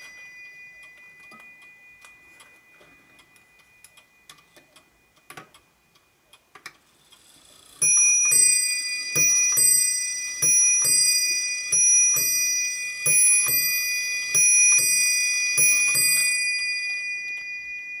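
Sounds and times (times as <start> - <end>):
clock ticking: 0.0 - 17.4
clock gongs striking ding-dong: 7.8 - 18.0.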